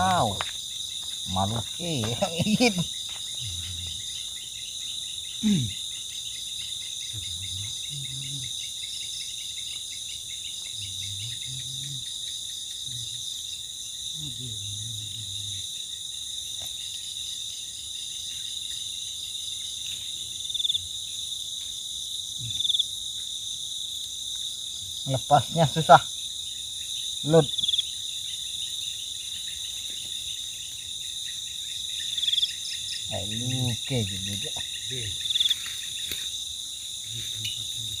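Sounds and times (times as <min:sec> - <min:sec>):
crickets trilling: 0:00.0 - 0:38.0.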